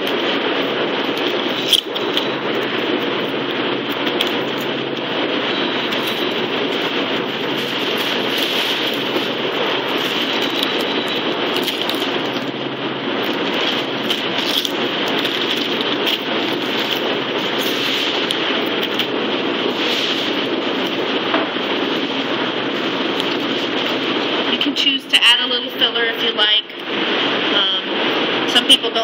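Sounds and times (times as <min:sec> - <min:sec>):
refrigeration fans rushing: 0:00.0 - 0:29.0.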